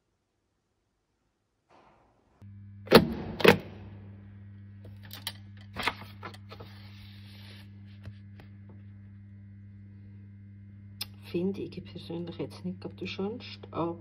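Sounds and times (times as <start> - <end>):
steady low hum: 2.4 - 14.0
paper booklet rustling: 5.8 - 8.2.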